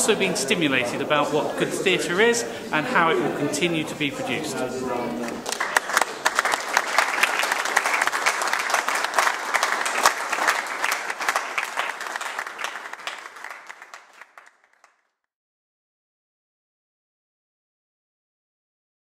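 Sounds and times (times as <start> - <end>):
audience applauding: 5.2 - 15.1.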